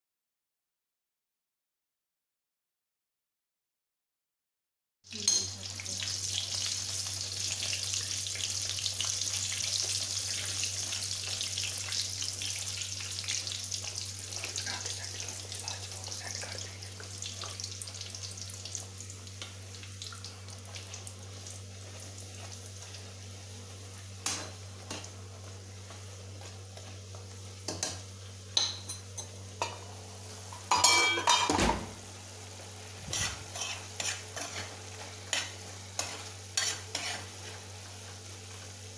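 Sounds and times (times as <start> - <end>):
food sizzling in hot oil: 5.1 - 38.9
spoon scraping a pan: 33.0 - 37.7.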